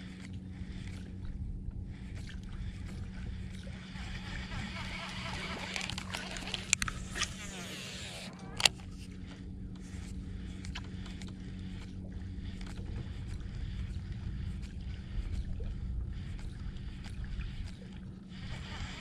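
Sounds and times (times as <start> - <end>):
fishing reel cranking: 2.9 - 8.9, 18.4 - 19.0.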